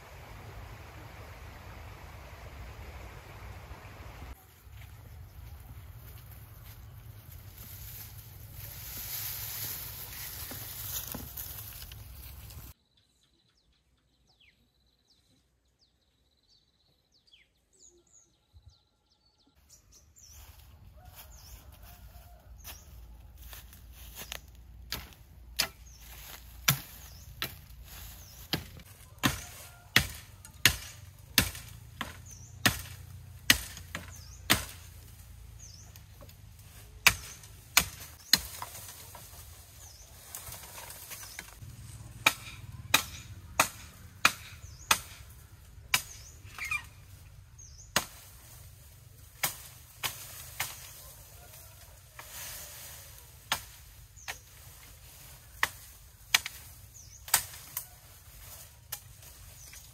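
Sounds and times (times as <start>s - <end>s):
chopping strokes cracking: 24.9s - 35.2s, 36.0s - 39.1s, 42.2s - 46.3s.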